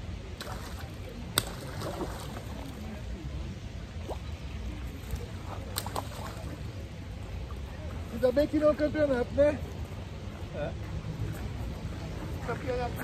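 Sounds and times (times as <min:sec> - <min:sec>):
water splashing and sloshing: 0:00.0 - 0:08.6.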